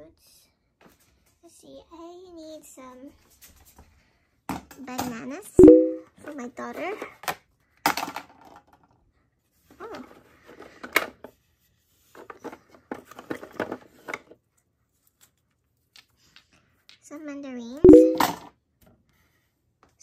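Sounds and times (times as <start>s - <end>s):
plastic toy fruit clattering in wooden bin: 7.0s - 8.8s.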